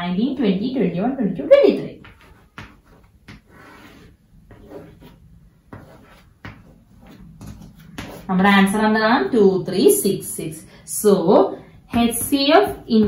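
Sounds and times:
chalk scraping: 2.0 - 8.3
chalk tapping on chalkboard: 2.0 - 8.3.

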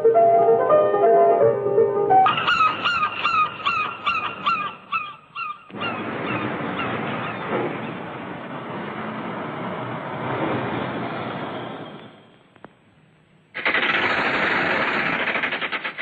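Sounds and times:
piano music: 0.0 - 4.4
bird calling: 2.2 - 8.1
steady rushing noise: 5.7 - 12.3, 13.6 - 16.0.

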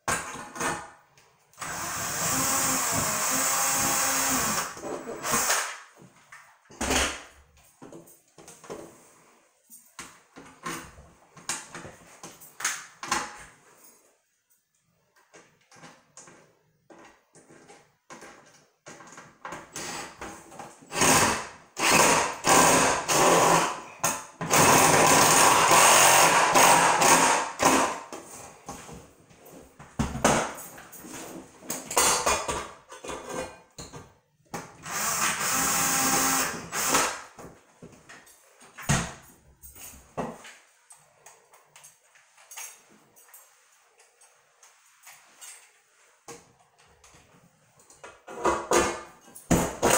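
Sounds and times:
cordless drill driving screws: 1.6 - 5.8, 20.9 - 23.8, 34.8 - 37.2.

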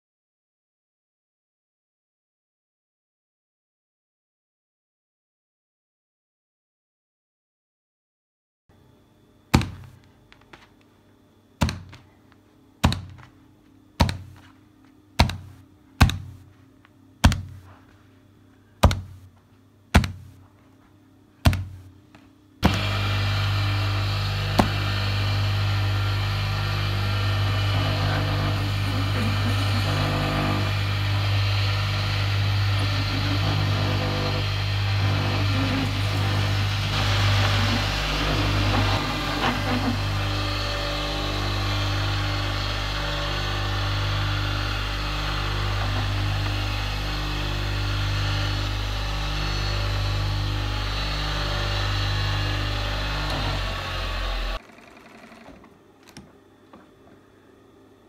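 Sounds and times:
cutting machine humming: 21.5 - 56.2.

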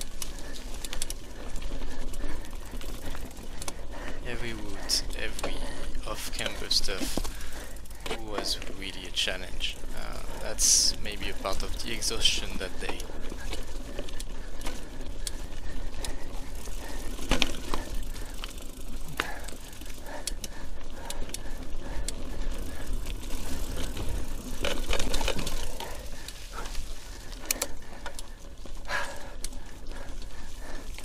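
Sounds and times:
bike chain and frame rattling: 0.0 - 31.0.

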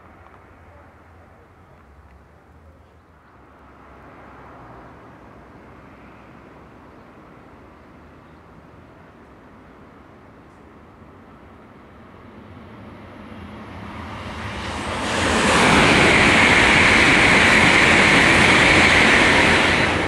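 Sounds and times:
high-speed train passing: 0.0 - 20.0.

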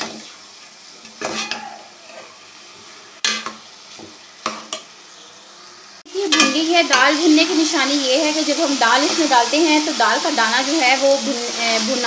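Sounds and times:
lentils sizzling in ghee: 0.0 - 12.0
spoon scraping a pot: 1.0 - 2.4.

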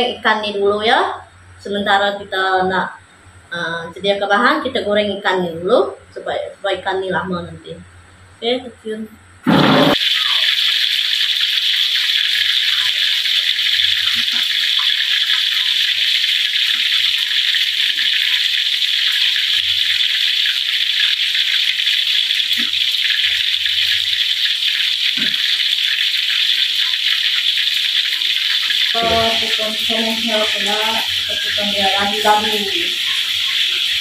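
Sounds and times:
fish sizzling in hot oil: 9.6 - 34.0.

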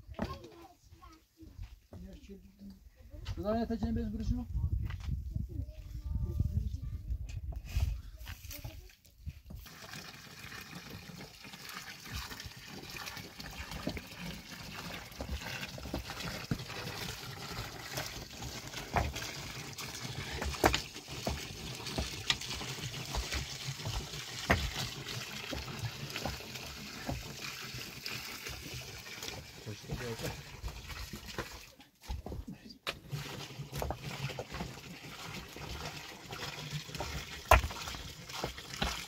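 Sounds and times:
water trickling: 9.5 - 31.9, 33.0 - 39.0.

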